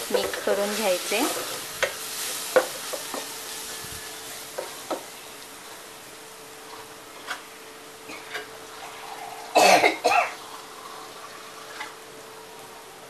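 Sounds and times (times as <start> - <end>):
faint steady hum: 0.0 - 13.0
person coughing harshly: 9.5 - 10.4.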